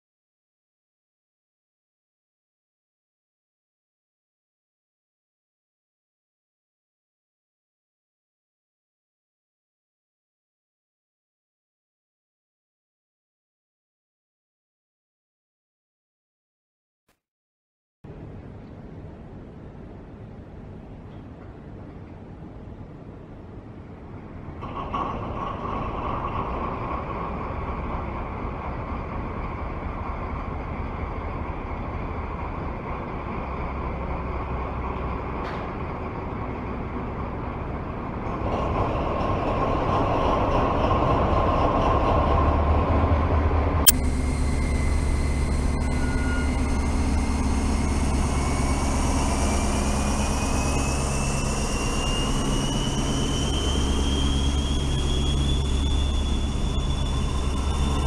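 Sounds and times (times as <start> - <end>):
model train rumbling on track: 18.1 - 58.0
low hum: 41.4 - 58.0
whine rising in pitch: 43.8 - 58.0.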